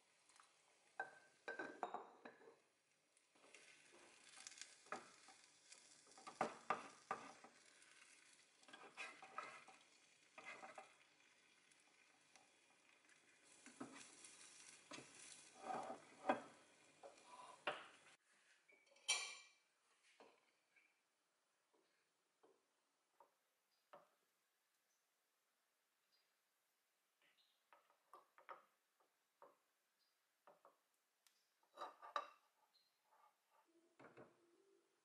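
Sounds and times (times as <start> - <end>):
egg sizzling: 0.0 - 18.2
wooden spatula scraping a pan: 3.3 - 18.2.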